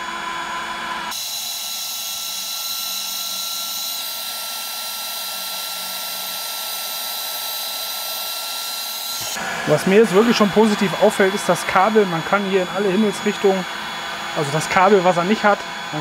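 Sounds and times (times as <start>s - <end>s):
high whine of blower motor: 0.0s - 16.0s
fan blowing hot air: 3.2s - 16.0s.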